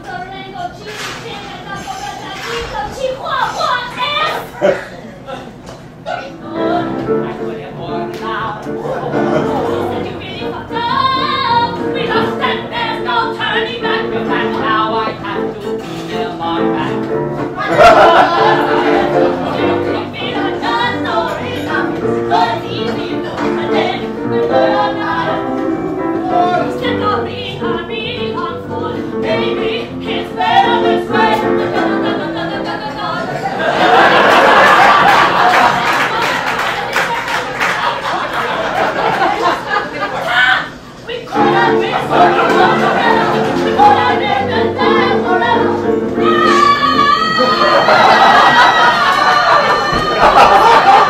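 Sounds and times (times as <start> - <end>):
steady held music notes: 1.6 - 35.4, 40.4 - 51.0
person singing: 41.3 - 50.3.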